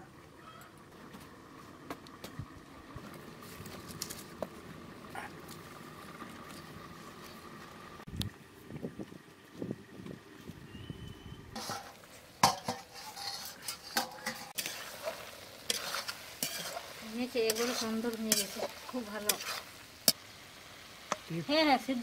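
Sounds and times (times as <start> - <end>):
masala sizzling: 0.0 - 8.1, 11.5 - 22.0
spatula scraping curry: 11.6 - 20.2.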